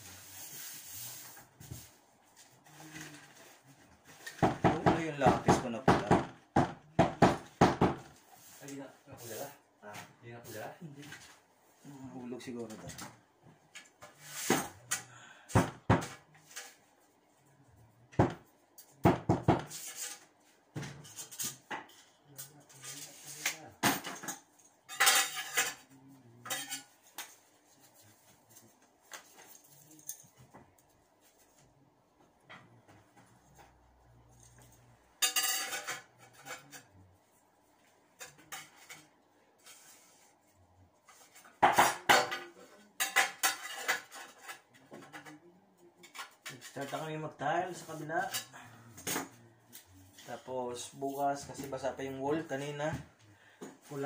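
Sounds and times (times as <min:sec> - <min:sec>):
tiles and tools clinking: 0:34.4 - 0:36.9.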